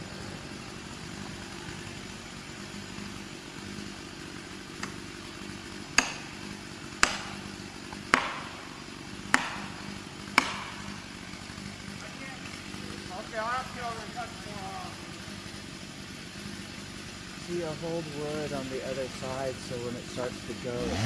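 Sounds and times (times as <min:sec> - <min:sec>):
low engine hum: 0:00.0 - 0:21.0
wedge hammering blows: 0:05.9 - 0:11.0.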